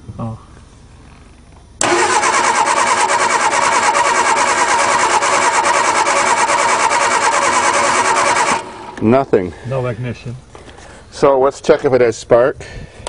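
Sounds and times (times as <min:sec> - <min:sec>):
starter motor cranking engine: 0:01.8 - 0:09.2.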